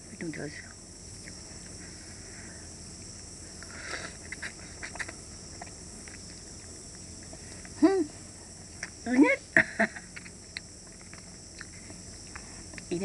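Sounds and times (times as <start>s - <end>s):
wet chewing smacks: 3.0s - 7.8s, 10.0s - 12.9s.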